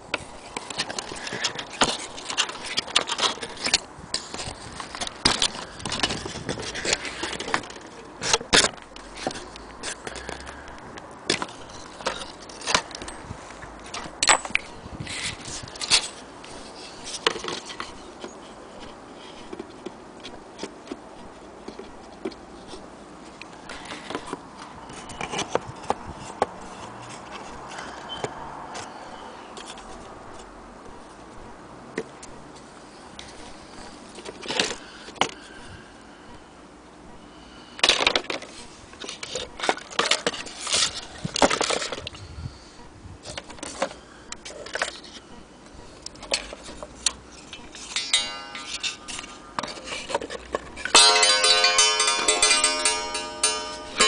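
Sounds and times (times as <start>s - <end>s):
wooden clock parts clicking and knocking: 0.1s - 28.9s, 37.8s - 42.2s, 46.0s - 54.0s.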